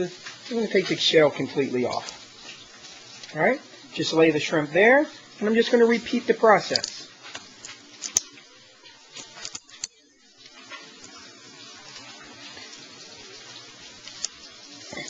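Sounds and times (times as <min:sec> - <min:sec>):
faint steady hiss: 0:00.0 - 0:15.0
shrimp shells snapping off: 0:06.8 - 0:08.3.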